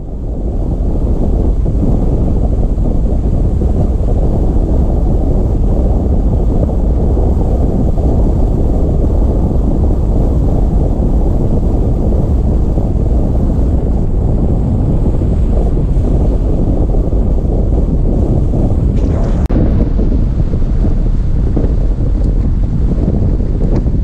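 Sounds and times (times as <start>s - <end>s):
wind buffeting microphone: 0.0s - 24.0s
tyre and road noise: 17.1s - 24.0s.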